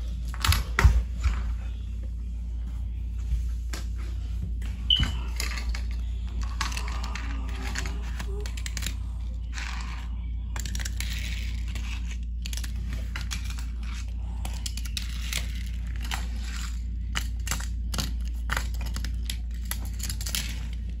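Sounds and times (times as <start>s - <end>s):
steady low hum: 0.0s - 21.0s
toy cars scraping on wooden floor: 5.4s - 14.1s.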